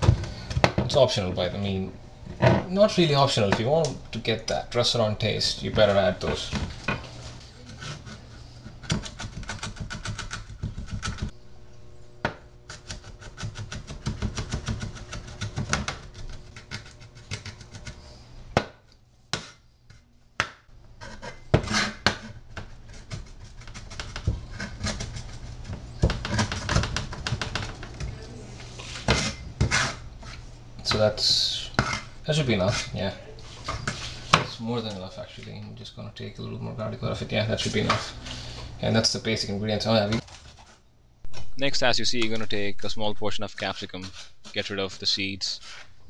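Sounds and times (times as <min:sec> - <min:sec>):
cleaver chopping on plastic board: 0:12.2 - 0:16.0.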